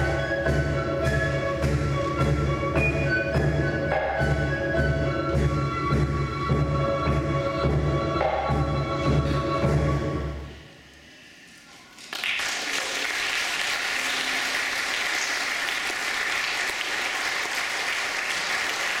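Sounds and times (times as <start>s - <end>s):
choir and percussion music: 0.0s - 11.5s
audience applause: 11.9s - 19.0s.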